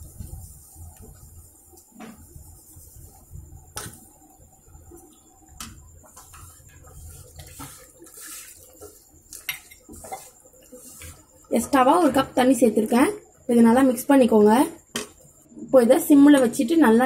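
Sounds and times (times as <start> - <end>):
metal spoon scraping a pan: 6.2 - 11.2.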